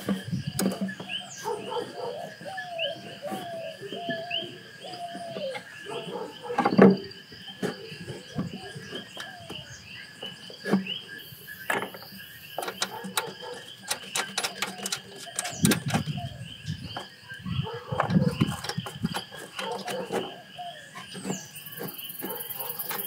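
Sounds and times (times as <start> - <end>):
insects trilling: 0.0 - 23.0
plastic parts knocking and clicking: 11.6 - 16.2, 18.0 - 20.3.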